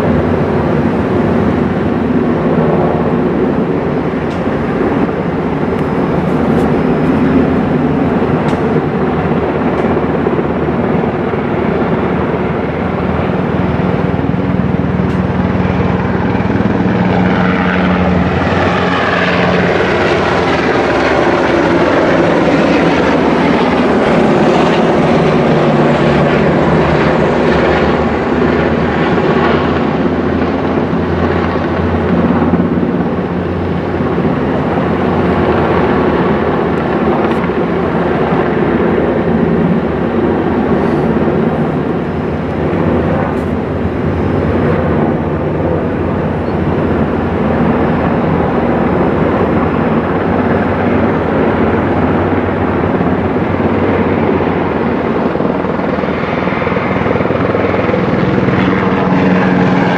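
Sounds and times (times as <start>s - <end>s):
helicopter passing over: 0.0s - 59.9s.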